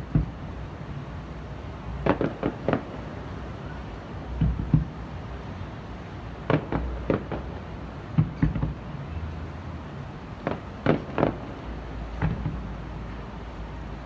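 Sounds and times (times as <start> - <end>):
fireworks bangs: 0.0 - 0.4, 1.9 - 5.1, 6.4 - 8.9, 10.4 - 12.8.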